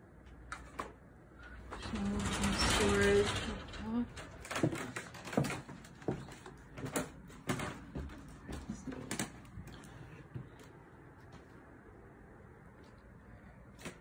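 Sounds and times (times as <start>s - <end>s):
closet doors knocking and rattling: 1.6s - 9.4s.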